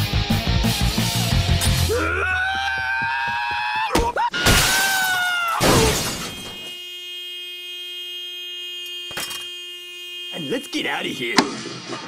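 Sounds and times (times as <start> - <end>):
people screaming in fright: 1.8 - 6.0
glass breaking crash: 4.4 - 6.7
car horn sounding: 5.9 - 11.6.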